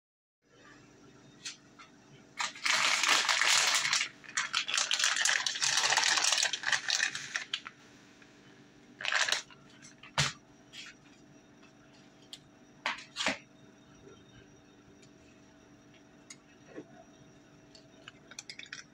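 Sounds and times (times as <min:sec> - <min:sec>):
plastic bag crinkling: 0:02.4 - 0:07.8, 0:09.0 - 0:10.2.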